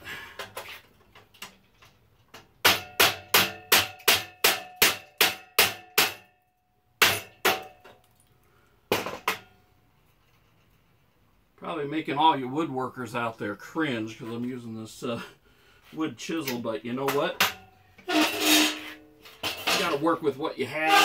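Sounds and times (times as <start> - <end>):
hammer striking chisel: 2.6 - 6.4.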